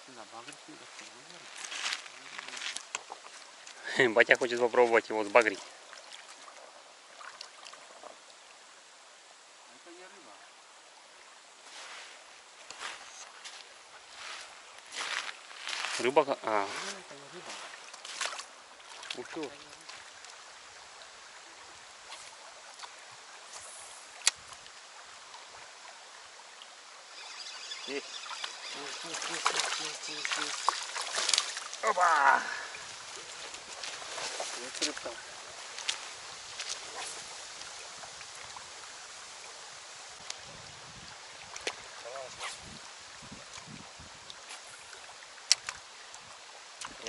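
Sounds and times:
river rushing over stones: 0:07.9 - 0:47.0
faint ticks: 0:22.1 - 0:24.8, 0:45.4 - 0:46.2.

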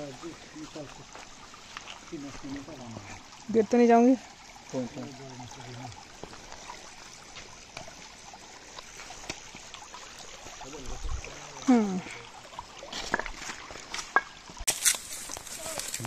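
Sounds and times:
stream running over rocks: 0:00.0 - 0:16.0
person calling out: 0:15.6 - 0:16.0.

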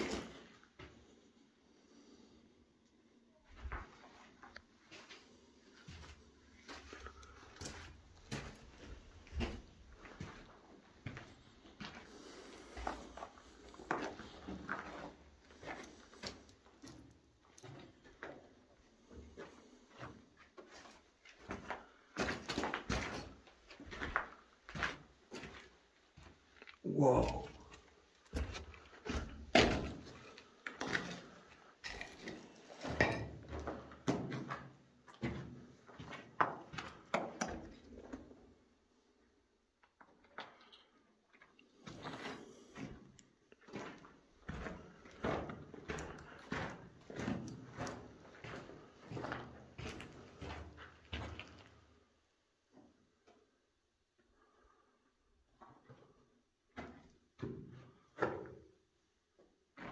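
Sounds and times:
footsteps crunching on rubble: 0:03.5 - 0:26.7
footsteps on brick rubble: 0:43.6 - 0:51.8.

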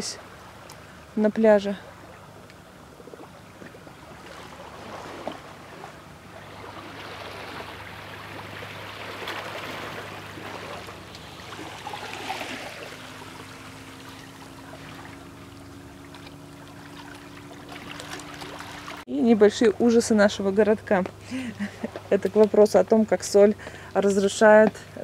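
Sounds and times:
sea water washing on shore: 0:00.0 - 0:19.1.

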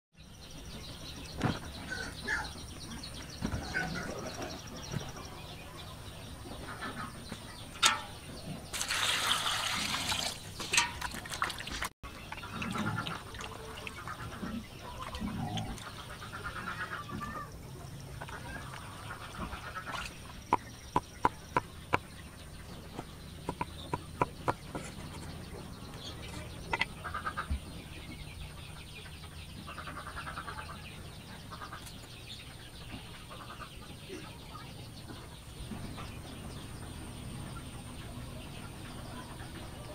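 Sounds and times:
birds and fowl calling: 0:00.5 - 0:39.9
water splashing in a basin: 0:08.7 - 0:14.2
sharp taps: 0:23.0 - 0:24.8.

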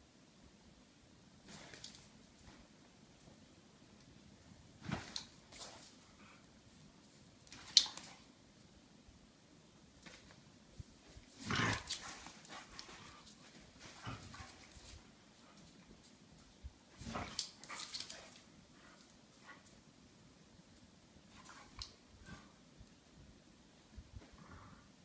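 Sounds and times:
dogs play-fighting: 0:11.2 - 0:15.8, 0:16.9 - 0:19.8.

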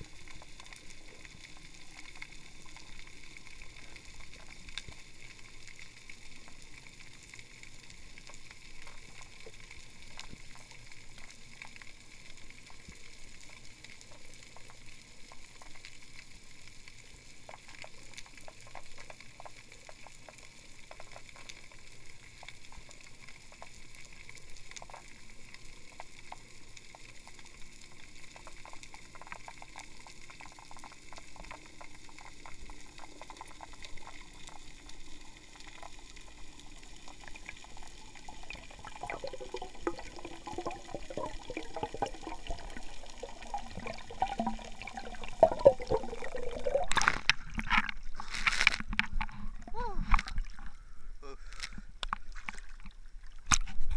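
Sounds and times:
sharp underwater clicks: 0:43.6 - 0:50.8, 0:51.5 - 0:53.9.

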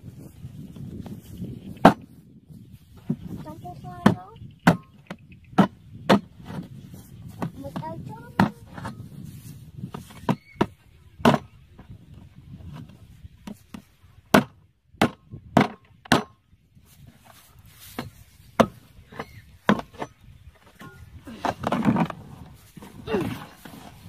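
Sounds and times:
machete chopping plastic can: 0:14.3 - 0:16.4.

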